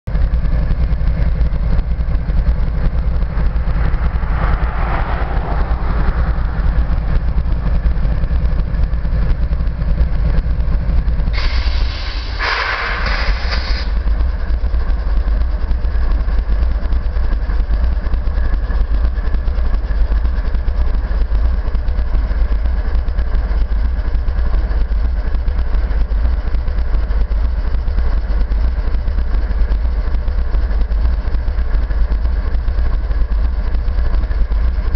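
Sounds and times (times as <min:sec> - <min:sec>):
diesel locomotive idling: 0:00.1 - 0:34.9
loud hiss: 0:11.4 - 0:14.0.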